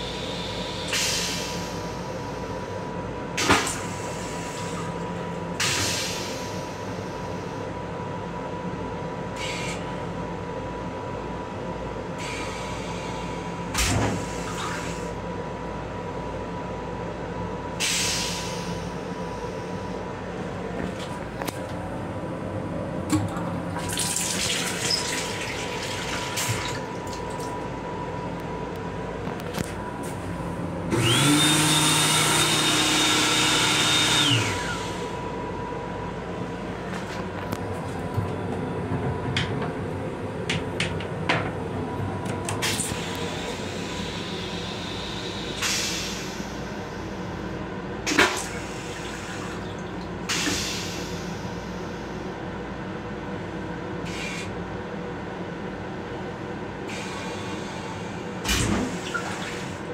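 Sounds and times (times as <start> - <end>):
motor whining: 30.9 - 34.9.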